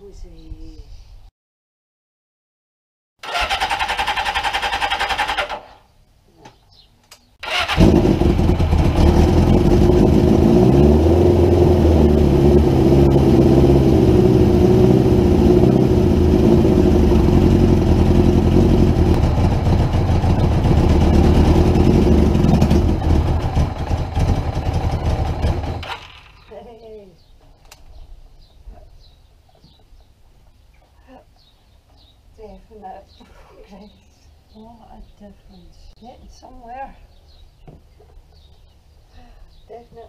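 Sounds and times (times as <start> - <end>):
motorcycle starter cranking: 3.2 - 5.8, 7.4 - 10.2, 21.2 - 26.5
motorcycle engine running: 7.4 - 26.6.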